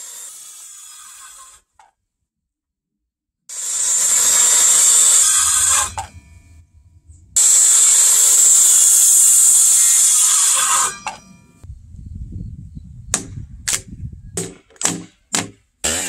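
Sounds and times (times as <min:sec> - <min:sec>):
circular saw cutting timber: 0:00.0 - 0:01.9, 0:03.5 - 0:06.6, 0:07.2 - 0:11.6, 0:14.8 - 0:16.0.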